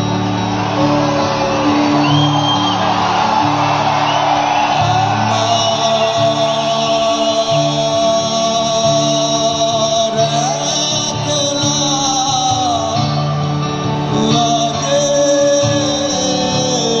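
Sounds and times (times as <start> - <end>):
rock band playing: 0.0 - 6.1
person singing long notes: 4.8 - 17.0.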